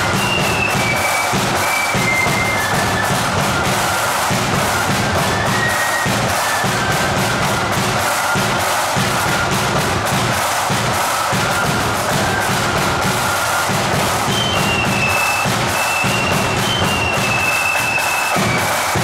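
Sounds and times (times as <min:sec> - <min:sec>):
flutes playing high melody: 0:00.0 - 0:19.0
snare drums: 0:00.0 - 0:19.0.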